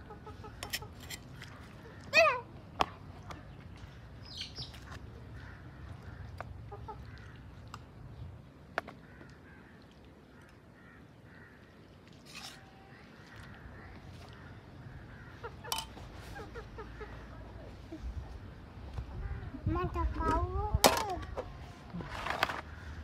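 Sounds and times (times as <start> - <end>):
chickens clucking: 0.0 - 1.1, 15.0 - 17.8
metal spoon clinking on pan: 15.7 - 15.9.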